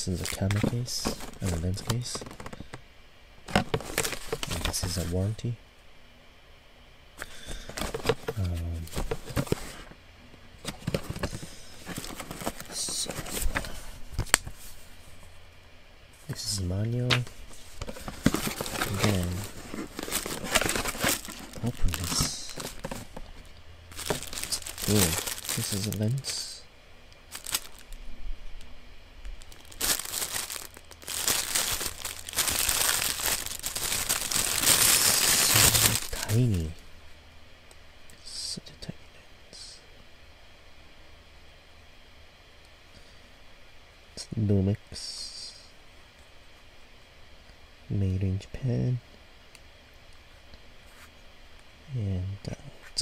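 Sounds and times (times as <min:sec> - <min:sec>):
packaging crinkling: 0:00.0 - 0:02.8, 0:03.5 - 0:05.1, 0:07.5 - 0:09.9, 0:10.7 - 0:14.4, 0:17.1 - 0:26.6, 0:27.3 - 0:28.0, 0:29.3 - 0:36.4
paper and cardboard rustling: 0:00.0 - 0:02.8, 0:03.5 - 0:05.1, 0:07.5 - 0:09.9, 0:10.6 - 0:14.8, 0:17.1 - 0:26.4, 0:27.3 - 0:27.8, 0:29.4 - 0:36.4.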